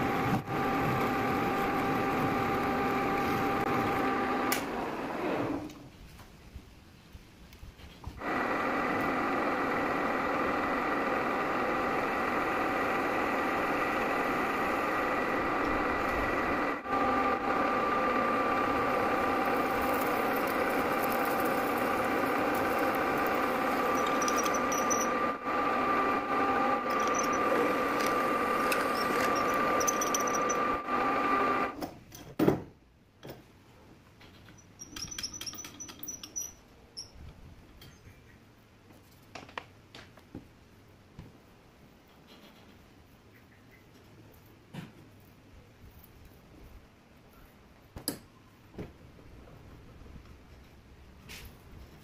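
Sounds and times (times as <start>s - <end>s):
metal lathe whining hum: 0.0s - 5.7s, 8.2s - 31.8s.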